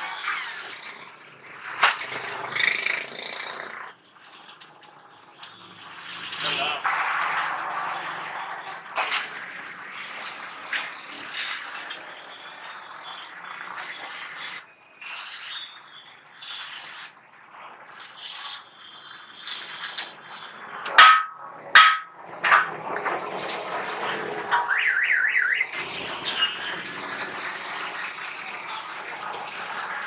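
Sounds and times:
sharp taps on metal: 0:20.8 - 0:22.7.

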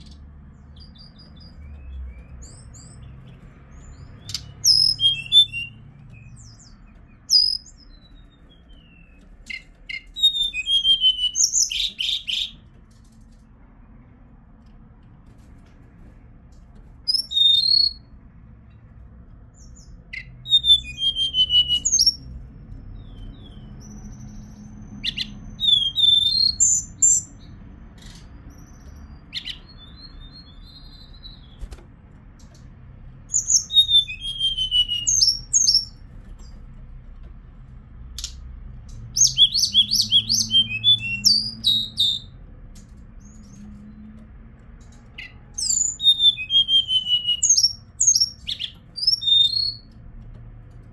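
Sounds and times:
bird singing whistled notes: 0:00.0 - 0:12.6, 0:17.1 - 0:18.1, 0:19.6 - 0:22.4, 0:23.0 - 0:27.5, 0:28.5 - 0:31.7, 0:33.3 - 0:36.0, 0:39.1 - 0:42.4, 0:45.1 - 0:50.0.

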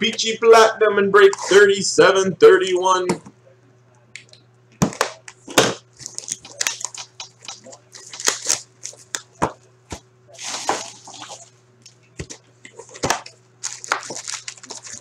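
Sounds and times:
plastic wrap crinkling: 0:05.9 - 0:09.3, 0:10.3 - 0:11.5, 0:12.8 - 0:15.0.

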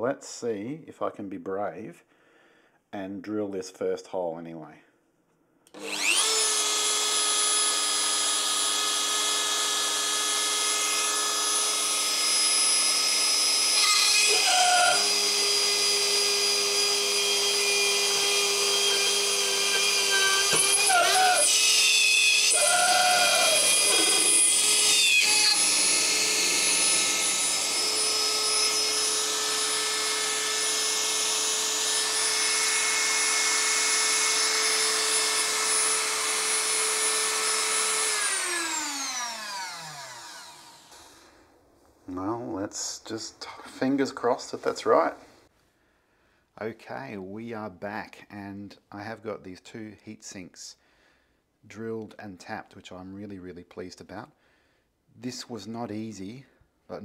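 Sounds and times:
rotary tool drilling into metal: 0:05.7 - 0:41.2.

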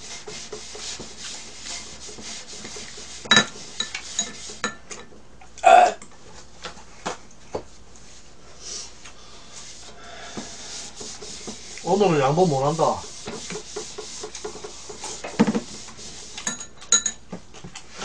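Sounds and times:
paper towel rubbing on griddle: 0:00.0 - 0:04.6, 0:09.5 - 0:16.5
dishes and utensils clinking: 0:03.3 - 0:05.2, 0:16.4 - 0:17.3.

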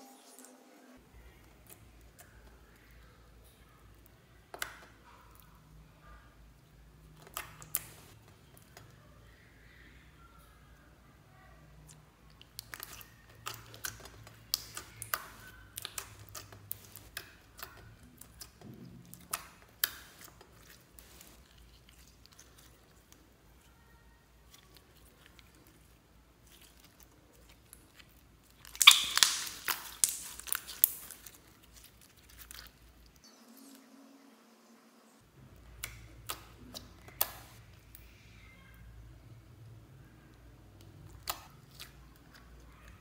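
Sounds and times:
crackling slime squelches: 0:01.0 - 0:10.2, 0:11.6 - 0:33.7, 0:35.3 - 0:43.0
slime squished by hand: 0:07.0 - 0:08.9, 0:11.8 - 0:33.2, 0:35.6 - 0:38.1, 0:40.8 - 0:43.0.

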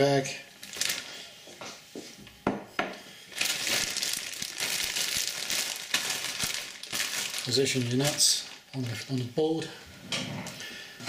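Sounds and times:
plastic bag crinkling: 0:00.6 - 0:01.3, 0:03.3 - 0:09.7.

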